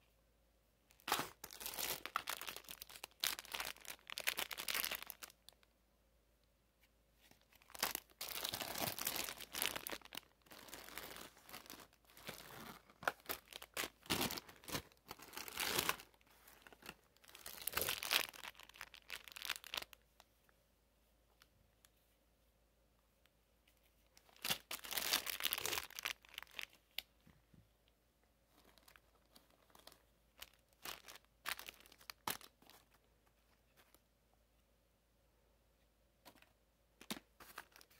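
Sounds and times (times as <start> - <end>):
plastic candy wrappers rustling: 0.9 - 5.7, 7.3 - 20.0, 24.2 - 27.1, 28.5 - 33.1, 36.3 - 37.9.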